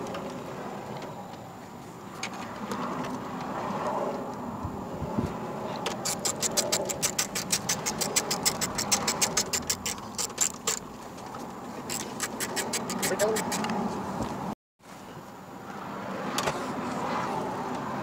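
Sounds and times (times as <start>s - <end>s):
ratchet tool clicking: 6.0s - 10.9s, 11.9s - 13.8s.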